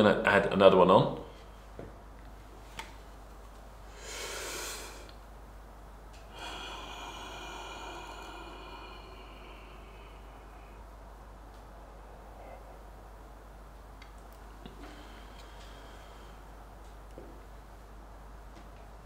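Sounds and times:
deep breath in: 3.9s - 5.2s, 6.2s - 11.3s, 14.7s - 16.5s.

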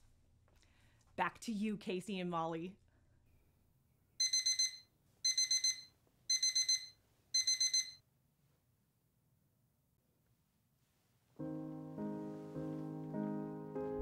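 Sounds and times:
alarm clock beeping: 4.2s - 8.0s.

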